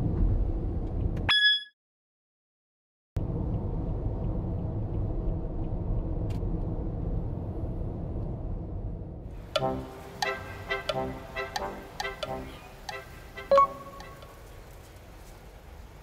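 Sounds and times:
car cabin road and engine rumble: 3.2 - 10.6.

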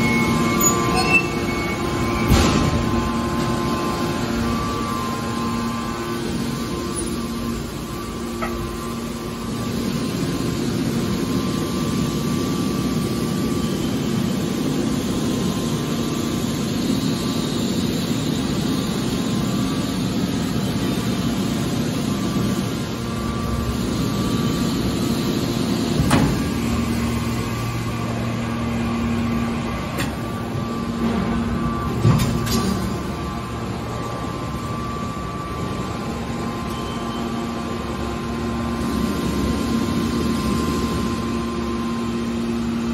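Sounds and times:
hydraulic power unit humming: 0.0 - 42.9.

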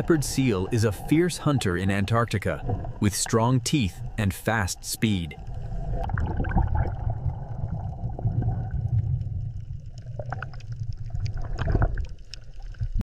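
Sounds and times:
underwater rumble: 0.0 - 13.0
water bubbling: 0.0 - 13.0
small clicks: 9.9 - 12.9.

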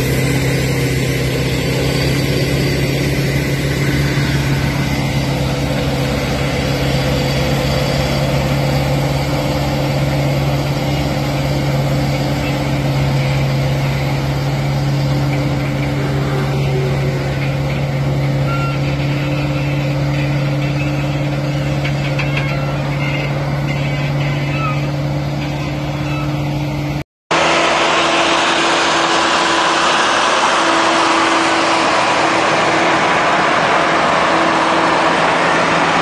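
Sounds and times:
truck diesel engine idling: 0.0 - 27.0.

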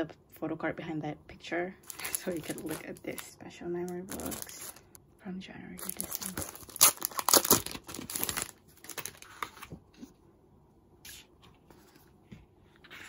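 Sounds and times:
plastic sleeve crinkling: 1.8 - 5.0, 5.8 - 9.7.

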